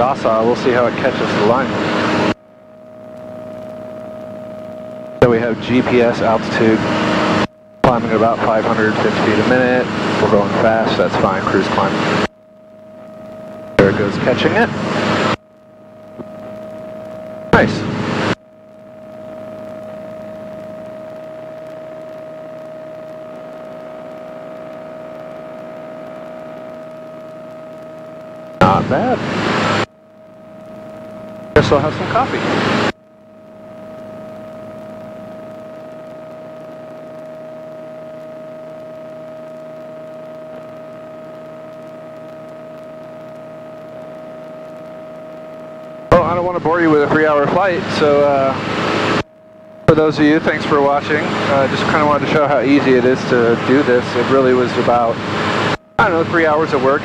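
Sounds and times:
light aircraft engine drone: 0.0s - 57.0s.

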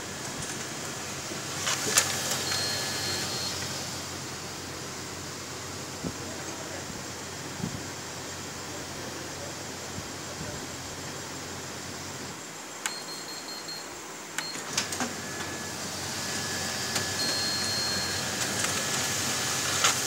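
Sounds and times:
copier feed motor whine: 0.0s - 20.0s
copier clicks: 14.3s - 15.5s, 16.9s - 20.0s.

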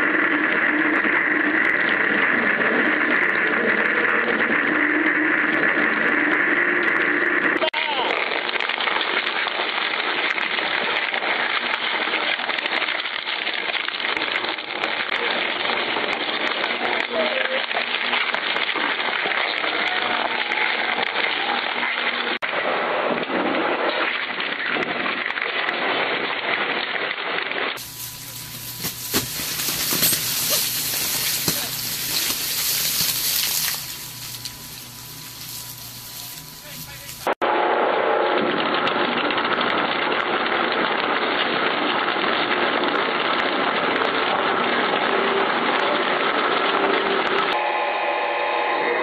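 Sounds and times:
shredder crunching scrap: 27.8s - 34.5s
metal cracking and snapping: 27.8s - 37.1s.

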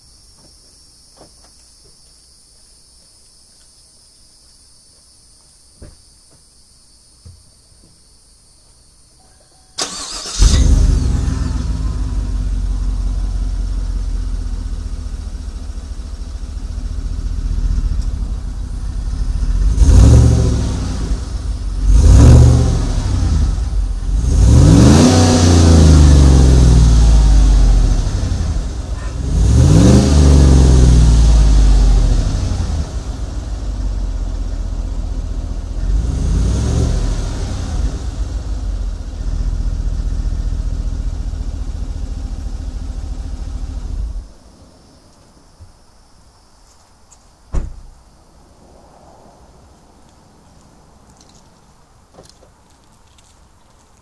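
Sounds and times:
crickets chirping: 0.0s - 54.0s
engine revving: 9.8s - 15.2s, 19.0s - 44.2s
truck engine starting: 9.8s - 44.4s
engine idling with low rumble: 10.1s - 44.4s.

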